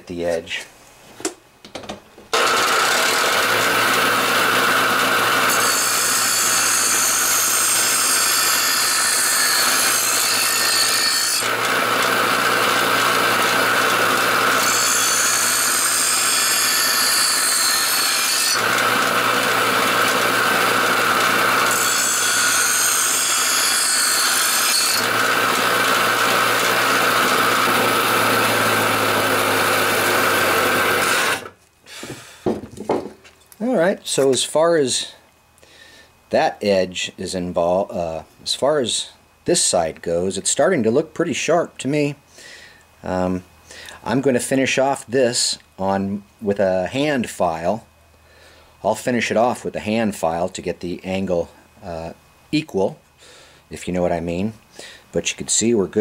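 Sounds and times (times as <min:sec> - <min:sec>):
bench grinder running: 0:02.3 - 0:31.6.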